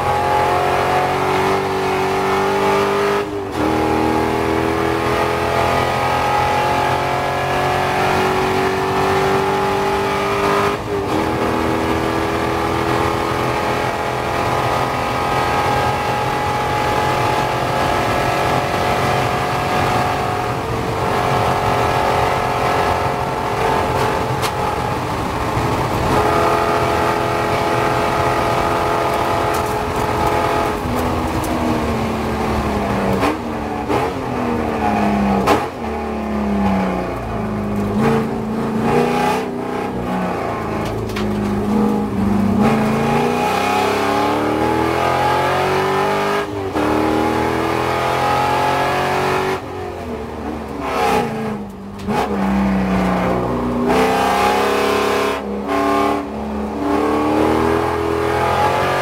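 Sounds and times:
race car engine at full throttle: 0.0 - 59.0
throttle blips on downshifts: 8.1 - 34.2.

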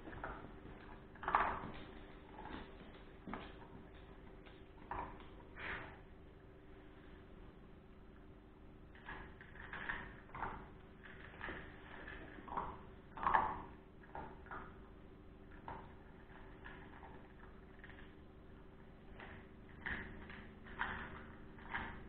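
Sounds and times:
dog crunching dry kibble: 0.0 - 5.9, 8.9 - 22.0
faint steady hum: 0.0 - 22.0.

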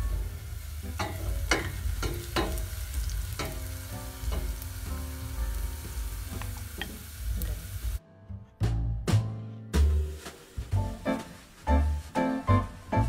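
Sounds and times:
onions sizzling in a pot: 0.0 - 8.0, 9.8 - 12.2
background music with steady tones: 0.0 - 13.0.

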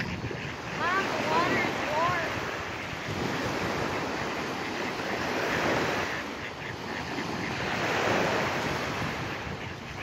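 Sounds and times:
small waves washing on shore: 0.0 - 10.0
wind rumbling on microphone: 0.0 - 10.0.

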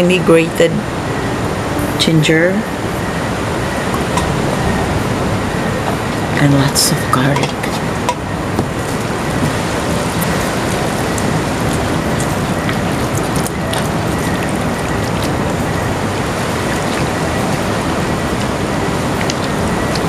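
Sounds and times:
steady rushing noise: 0.1 - 20.0
hands mixing in metal bowl: 6.0 - 20.0.

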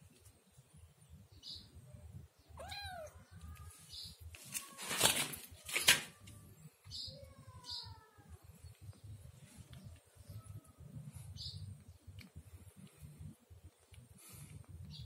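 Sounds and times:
kitten meowing: 2.6 - 3.2.

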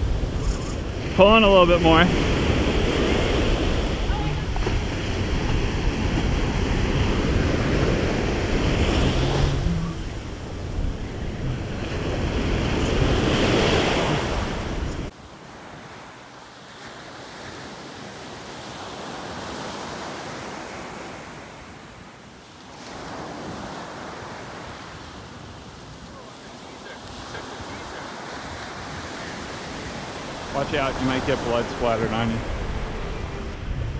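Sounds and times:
wind buffeting microphone: 0.0 - 1.2, 1.9 - 15.1, 27.1 - 33.9
small waves breaking on beach: 0.0 - 33.9.

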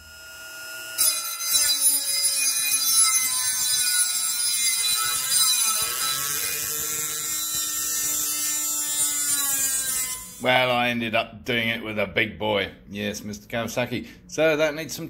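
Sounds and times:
rotary tool cutting metal: 0.0 - 10.5.

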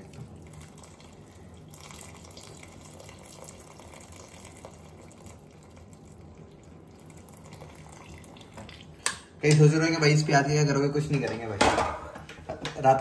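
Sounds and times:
milk pouring through strainer: 0.0 - 9.2.

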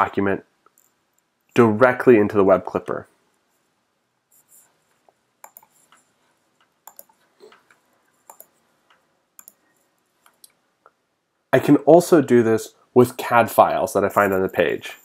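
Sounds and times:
computer mouse clicks: 4.9 - 11.0.

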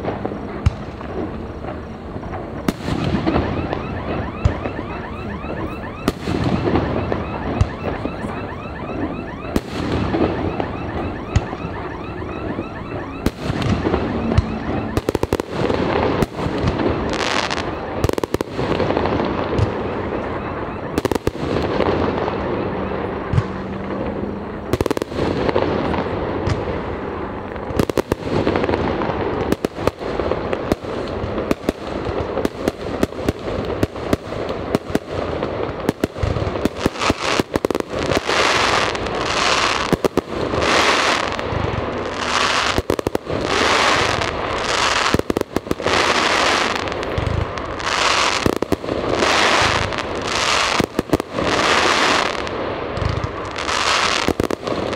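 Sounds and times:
fireworks bangs: 0.0 - 54.9
hissing firework bursts: 27.8 - 54.9.

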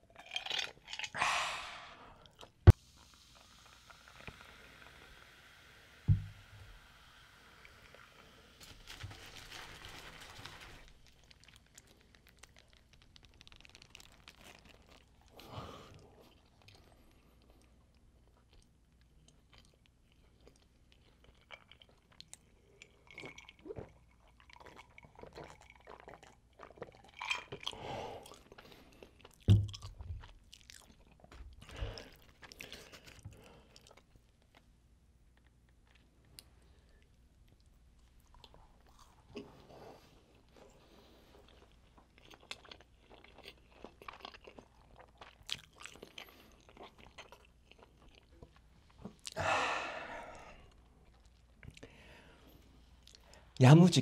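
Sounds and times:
chewing and crunching: 0.0 - 1.2, 10.6 - 34.7, 35.3 - 49.4, 50.6 - 53.6
heavy knock on table: 6.1 - 6.3
paper wrapper crinkling: 8.6 - 15.1.

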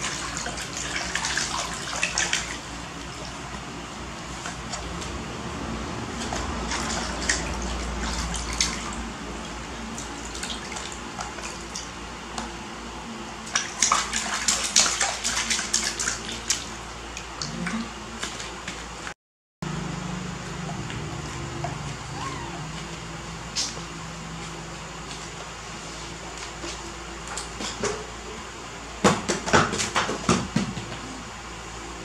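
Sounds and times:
steady low hum: 0.0 - 32.0
hands splashing water in a basin: 13.5 - 16.8.

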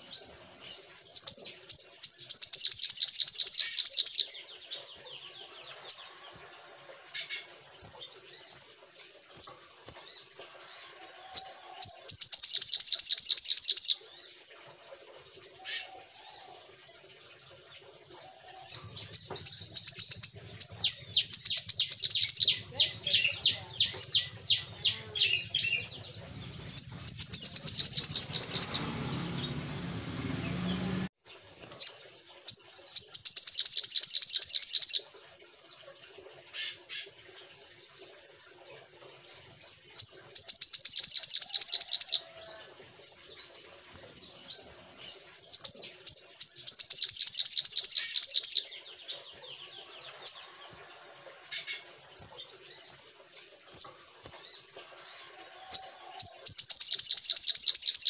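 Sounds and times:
bird trilling: 18.8 - 29.8
bird chips: 25.2 - 29.7.

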